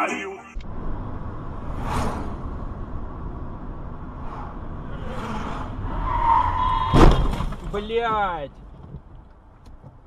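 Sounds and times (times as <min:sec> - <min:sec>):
truck passing whoosh: 0:00.6 - 0:07.4
car road and engine rumble: 0:00.6 - 0:10.0.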